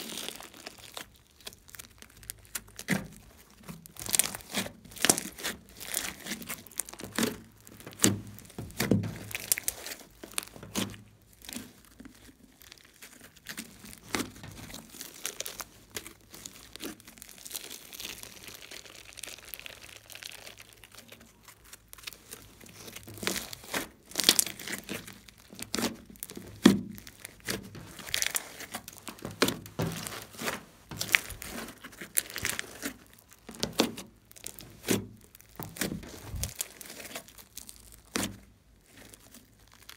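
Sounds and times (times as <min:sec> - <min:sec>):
slime air pockets popping: 0:00.2 - 0:11.6, 0:22.0 - 0:38.6.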